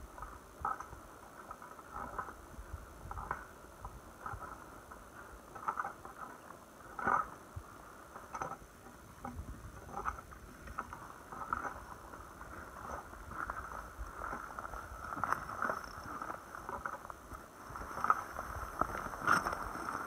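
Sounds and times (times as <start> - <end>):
wind rumble on microphone: 0.0 - 5.9, 6.8 - 20.0
water lapping and splashing: 4.1 - 20.0.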